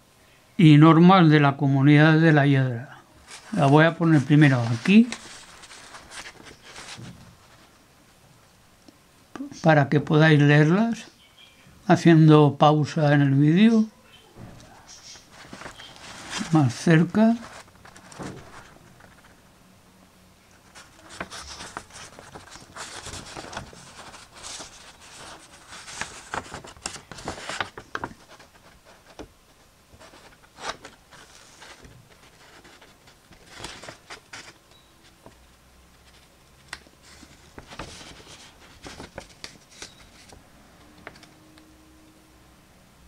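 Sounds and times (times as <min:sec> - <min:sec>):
paper rustling: 0:03.2 - 0:07.8, 0:14.6 - 0:19.4, 0:20.5 - 0:40.4.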